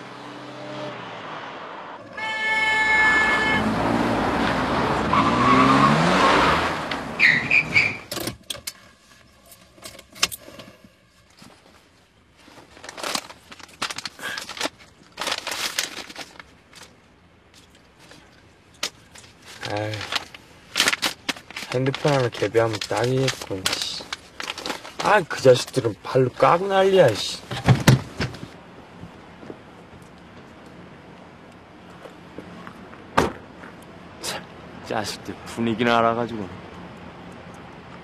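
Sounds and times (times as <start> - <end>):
car passing: 0.0 - 8.0
car horn blast: 2.0 - 4.2.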